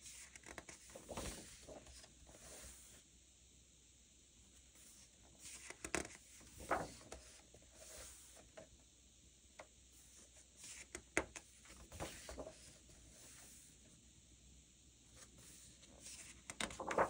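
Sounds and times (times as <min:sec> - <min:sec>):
paper page turning: 0:00.1 - 0:02.8, 0:05.4 - 0:08.4, 0:11.7 - 0:12.8, 0:15.3 - 0:17.0.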